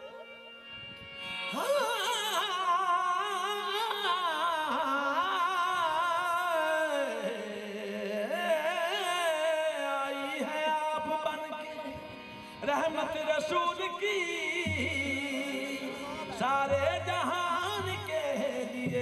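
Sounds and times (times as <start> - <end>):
person singing devotional melody: 0.0 - 19.0.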